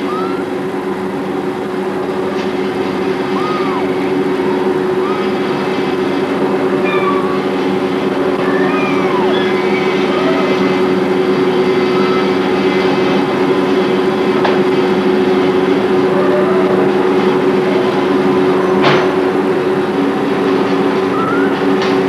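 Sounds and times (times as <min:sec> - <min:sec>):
kitten mewing: 0:00.0 - 0:00.6, 0:03.2 - 0:05.7, 0:06.8 - 0:07.5, 0:08.3 - 0:10.7, 0:11.7 - 0:12.5, 0:21.0 - 0:21.8
loud mechanical hum: 0:00.0 - 0:22.0.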